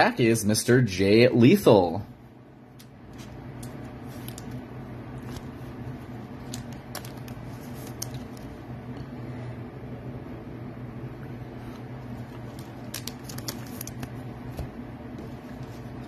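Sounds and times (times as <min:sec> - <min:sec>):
low room hum: 0:00.0 - 0:16.0
trading cards clicking on table: 0:06.5 - 0:08.4, 0:12.5 - 0:14.7.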